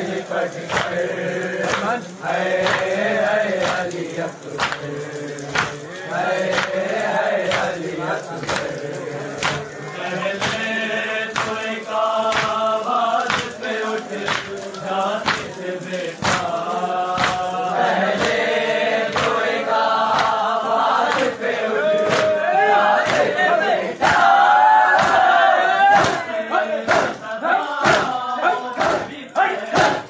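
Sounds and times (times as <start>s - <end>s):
men chanting together: 0.0s - 30.0s
hands slapping chests: 0.7s - 1.0s, 1.6s - 2.0s, 2.6s - 3.0s, 3.6s - 5.9s, 6.5s - 6.8s, 7.5s - 7.8s, 8.4s - 9.8s, 10.4s - 10.7s, 11.3s - 11.6s, 12.3s - 13.6s, 14.2s - 18.4s, 19.1s - 19.4s, 20.1s - 20.4s, 21.1s - 21.4s, 22.0s - 22.4s, 23.0s - 23.3s, 25.0s - 25.3s, 25.9s - 26.2s, 27.8s - 28.2s.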